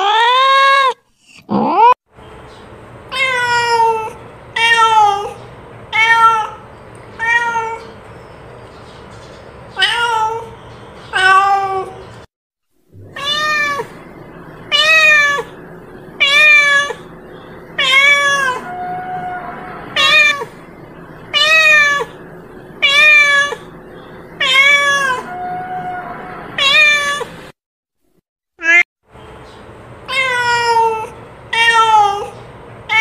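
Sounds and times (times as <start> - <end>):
cat meowing: 3.1 - 6.6, 7.2 - 8.0, 9.8 - 12.0, 13.0 - 14.0, 14.6 - 15.6, 16.2 - 17.1, 17.8 - 20.6, 21.3 - 22.2, 22.8 - 23.7, 24.4 - 27.4, 28.6 - 28.8, 30.1 - 33.0.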